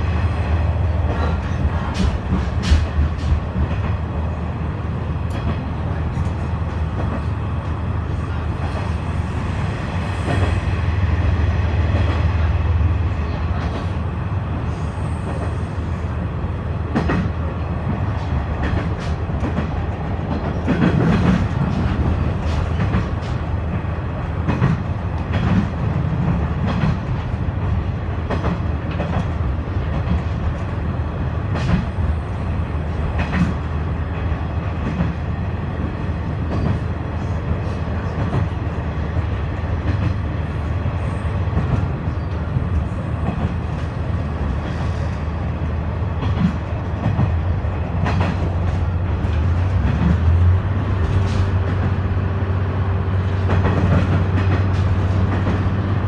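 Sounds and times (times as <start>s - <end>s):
railcar rumble and hum: 0.0s - 56.0s
wheels clacking over rail joints: 46.1s - 52.1s.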